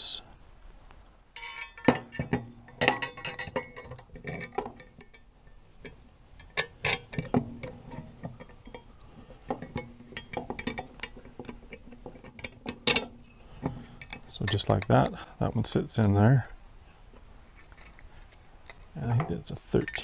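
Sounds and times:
metal brackets clinking: 1.4 - 15.1, 18.6 - 20.0.

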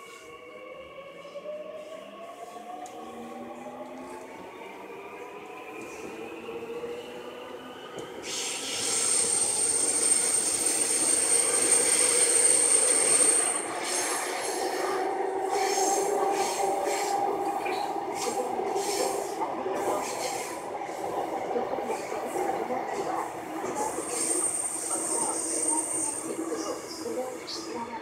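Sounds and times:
train running noise: 8.0 - 28.0.

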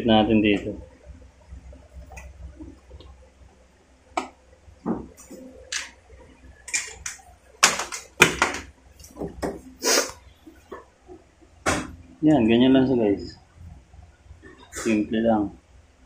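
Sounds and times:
low steady hum: 0.0 - 16.0
cable handling rustles and clicks: 6.7 - 9.5.

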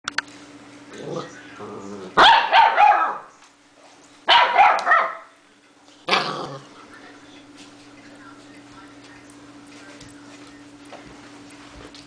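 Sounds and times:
puppy barking and growling: 0.9 - 3.3, 4.3 - 5.3, 6.0 - 6.7.

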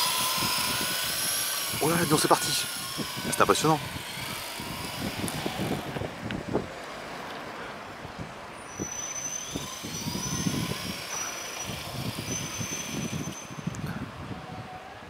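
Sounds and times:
toy helicopter whining: 0.0 - 6.1, 8.8 - 14.0
street traffic rumble: 0.0 - 15.0.

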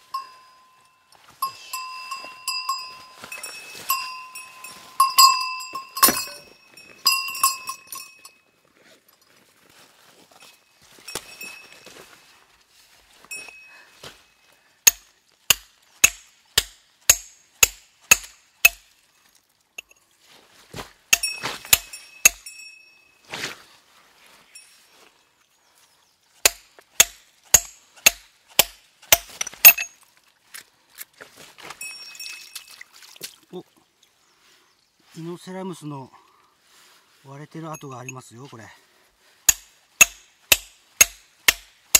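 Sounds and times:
scraping and shuffling: 1.2 - 14.3
hammer striking rock: 14.9 - 18.9, 21.1 - 22.5, 26.4 - 29.9, 39.5 - 41.8.

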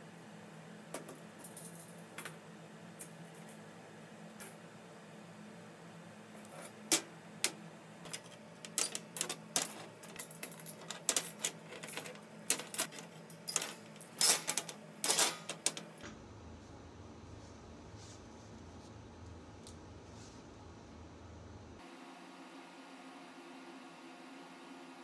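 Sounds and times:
metal parts clinking on metal tray: 8.0 - 15.9.

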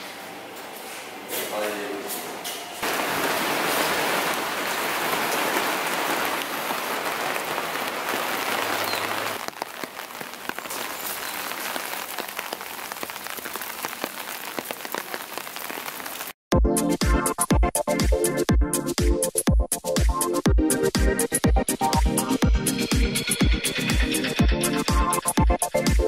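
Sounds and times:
rain falling: 2.8 - 16.4
raindrops hitting surfaces: 2.8 - 16.4.

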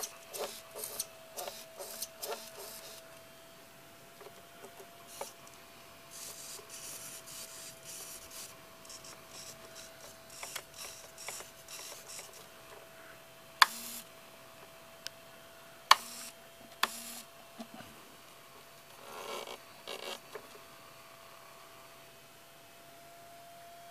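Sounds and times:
servos whirring: 0.0 - 3.1, 4.7 - 5.4, 6.1 - 12.5, 13.6 - 14.1, 15.9 - 17.2.

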